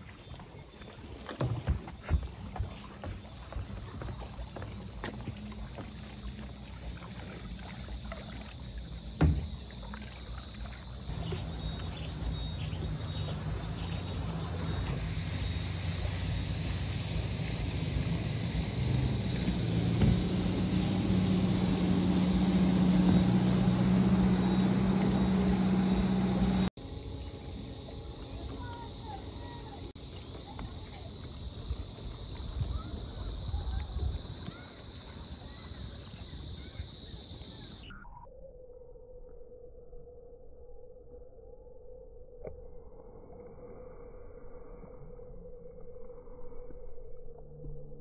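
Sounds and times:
motor humming: 11.1 - 29.9.

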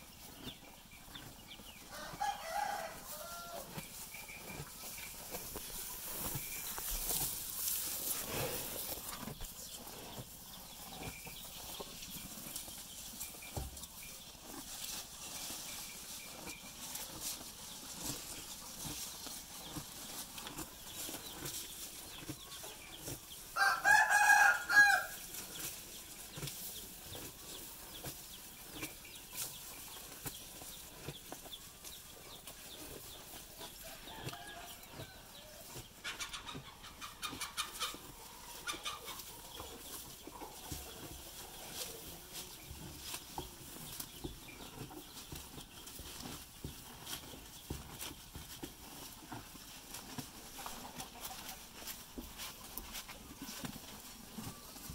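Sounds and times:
chicken clucking: 0.0 - 54.9
cow munching grass: 0.0 - 54.9
rooster crowing: 1.9 - 3.7, 23.6 - 25.1.

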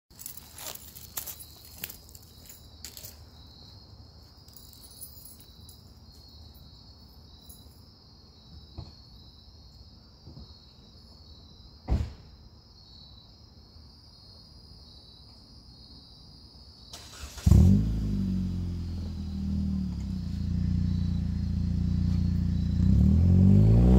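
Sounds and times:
crickets chirring: 0.1 - 23.9
car door thump: 11.9 - 12.3
car engine starting and idling: 16.9 - 23.9.

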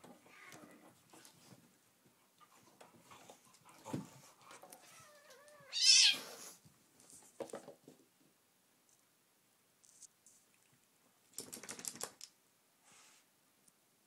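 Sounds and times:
kitten crying: 4.9 - 6.3.

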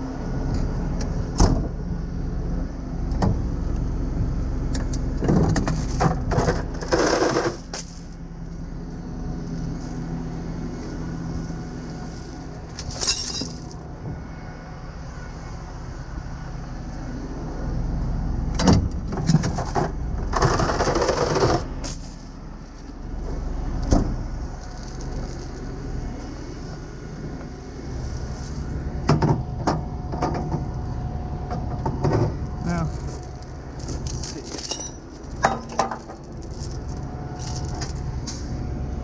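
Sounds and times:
steady engine hum: 0.0 - 39.0
chains clinking and clanking: 5.3 - 13.9, 19.2 - 22.8, 24.5 - 25.6, 28.0 - 29.4, 32.1 - 38.6.

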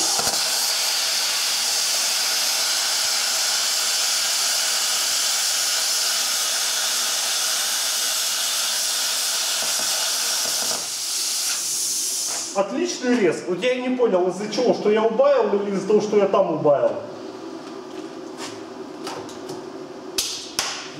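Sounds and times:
plasma cutter hissing: 0.0 - 12.7.

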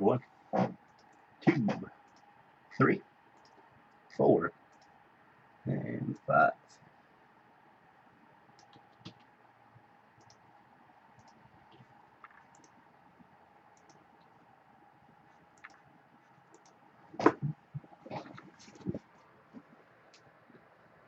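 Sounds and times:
low steady hum: 0.0 - 21.0
computer mouse clicks: 0.6 - 1.2, 2.1 - 2.3, 3.4 - 4.0, 4.7 - 4.9, 8.6 - 9.3, 10.2 - 10.4, 11.2 - 12.8, 13.8 - 14.3, 15.3 - 15.8, 16.5 - 16.8.

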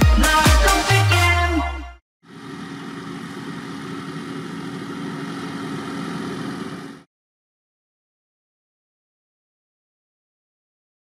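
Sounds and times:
tractor engine running: 2.3 - 7.1.

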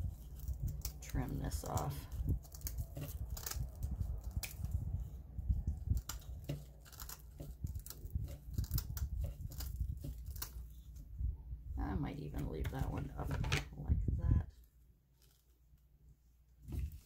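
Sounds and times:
scissors snipping moss: 0.2 - 4.8.

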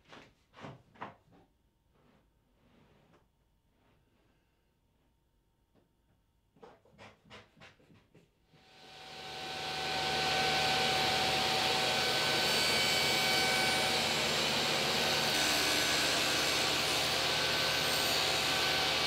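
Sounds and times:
table saw running: 8.6 - 19.0.

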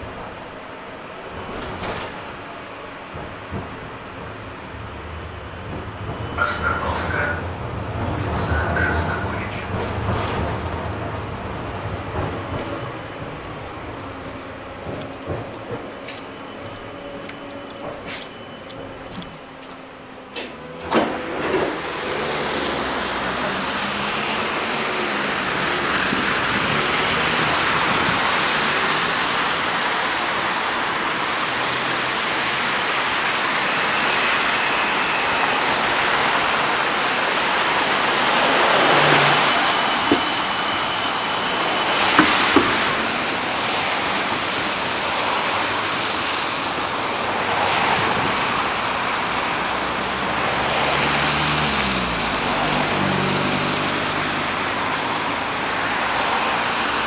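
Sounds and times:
cars on wet slushy road: 21.0 - 57.0.

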